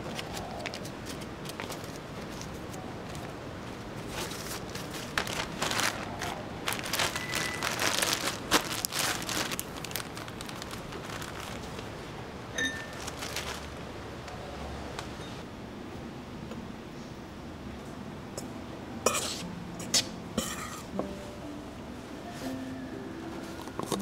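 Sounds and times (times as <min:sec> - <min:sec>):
plastic packaging crinkling: 0:00.0 - 0:03.4, 0:04.0 - 0:12.1, 0:12.8 - 0:13.8
short high tones: 0:07.2 - 0:07.6.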